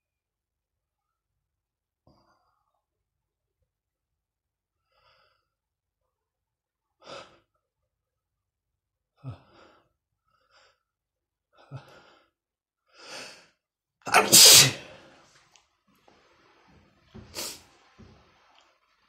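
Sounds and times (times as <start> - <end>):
man gasping before sneeze: 14.1 - 15.1.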